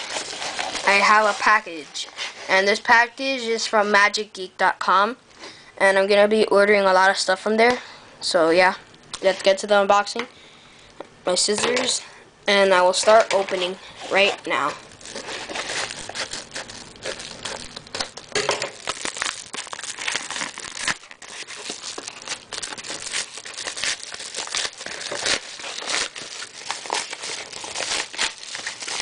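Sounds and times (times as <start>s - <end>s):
paper envelope crinkling and tearing: 0.0s - 2.4s, 13.0s - 29.0s.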